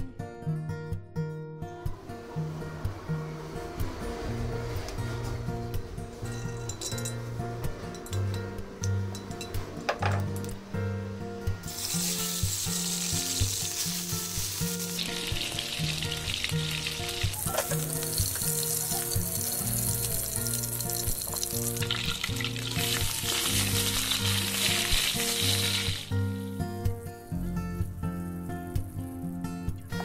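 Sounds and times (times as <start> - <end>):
background music: 0.0 - 30.0
food sizzling in hot oil: 11.6 - 30.0.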